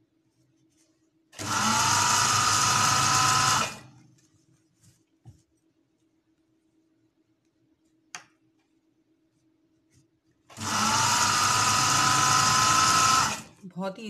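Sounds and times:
sewing machine motor whine: 0:01.4 - 0:03.9, 0:10.5 - 0:13.5.

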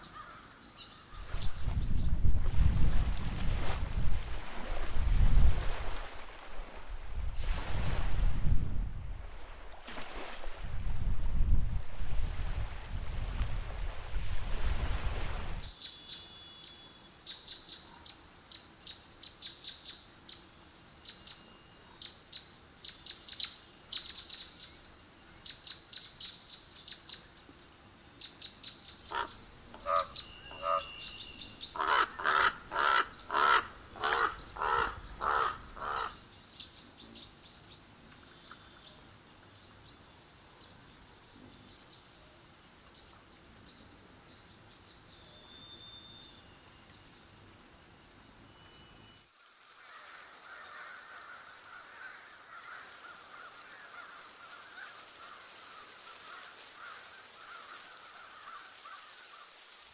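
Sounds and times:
crow cawing: 0:00.1 - 0:00.5, 0:29.1 - 0:30.9, 0:31.7 - 0:36.2, 0:49.8 - 0:59.1
small birds chirping: 0:15.6 - 0:47.9.

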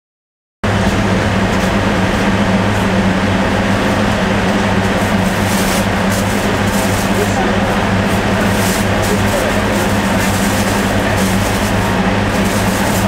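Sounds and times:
machine hum: 0:00.6 - 0:13.0.

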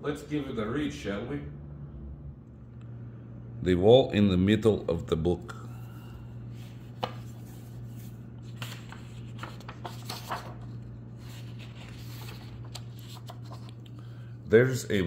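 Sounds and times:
steady low hum: 0:00.0 - 0:15.0
book pages rustling: 0:06.6 - 0:14.0.

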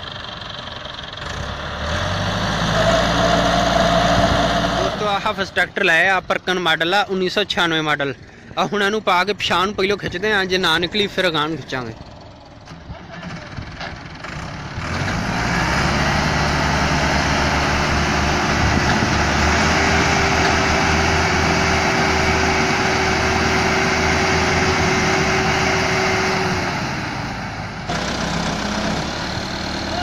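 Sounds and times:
tractor diesel engine under load: 0:00.0 - 0:30.0.

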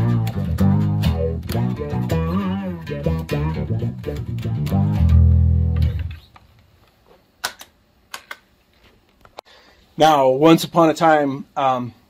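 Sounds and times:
electric bass with auto-wah: 0:00.0 - 0:06.3.

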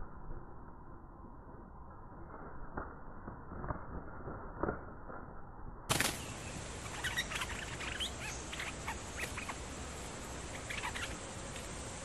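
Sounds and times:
birds chirping: 0:05.9 - 0:12.0.

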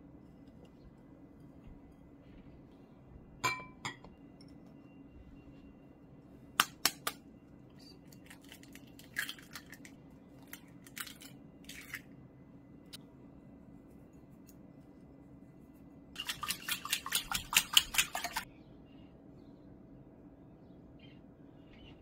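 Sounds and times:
ceramic dishes clinking: 0:03.4 - 0:04.1
eggshells crackling: 0:08.1 - 0:12.1.

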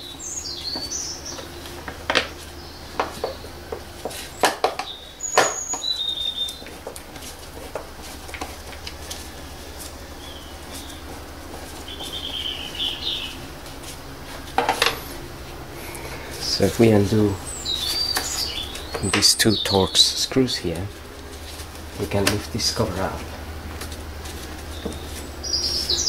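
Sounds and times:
bird chirps: 0:00.0 - 0:06.8, 0:09.2 - 0:13.5, 0:15.9 - 0:23.3, 0:24.5 - 0:26.0
low hum: 0:00.0 - 0:26.0.

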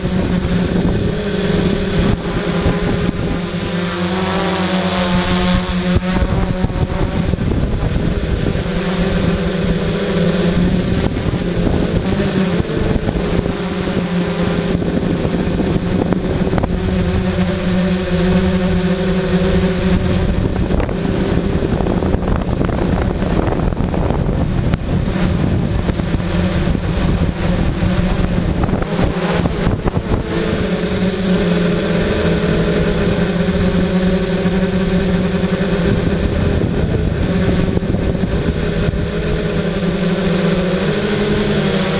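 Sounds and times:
quadcopter motors humming: 0:00.0 - 0:41.9.

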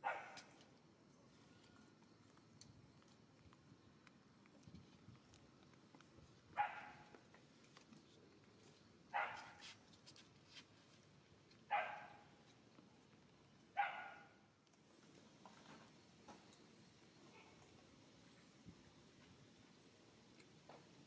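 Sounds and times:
animal barking: 0:00.0 - 0:00.5, 0:06.6 - 0:07.1, 0:11.7 - 0:12.2, 0:13.8 - 0:14.4.

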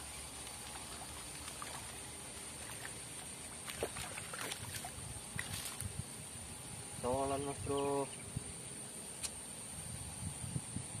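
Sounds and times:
lure splashing on water: 0:00.3 - 0:05.9
fish lunging splashes: 0:00.7 - 0:05.8.

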